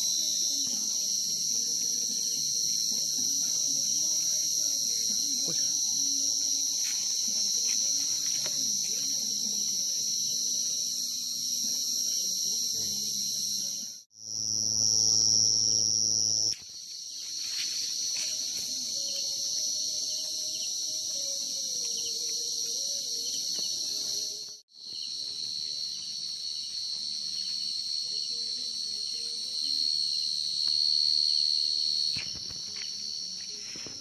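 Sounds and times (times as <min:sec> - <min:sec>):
chorus of crickets trilling: 0:00.0 - 0:34.0.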